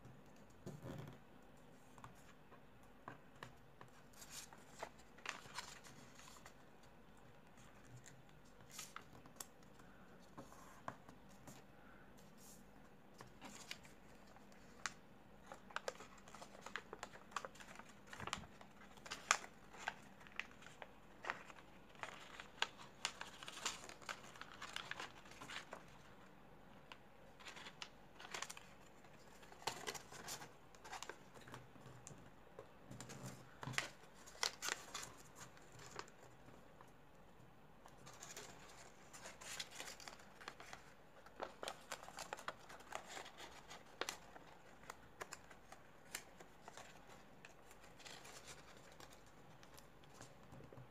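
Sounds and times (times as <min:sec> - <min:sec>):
paper being folded and creased: 0:03.8 - 0:06.6, 0:13.3 - 0:26.1, 0:27.3 - 0:31.6, 0:33.0 - 0:36.2, 0:38.0 - 0:50.9.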